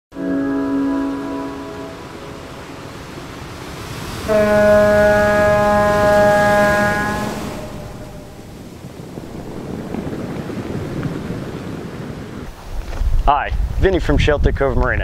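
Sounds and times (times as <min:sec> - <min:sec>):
ship's horn deep note: 0:00.1 - 0:08.7
rushing whoosh: 0:00.8 - 0:10.2.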